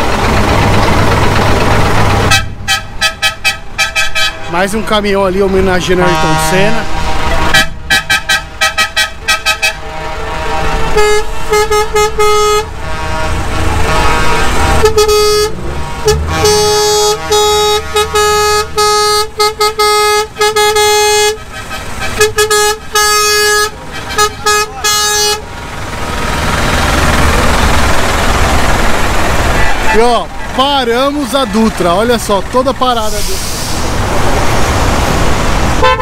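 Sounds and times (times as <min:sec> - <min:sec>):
diesel truck engine rumbling: 0:00.0 - 0:36.0
truck air horn honking: 0:02.2 - 0:28.5, 0:35.7 - 0:36.0.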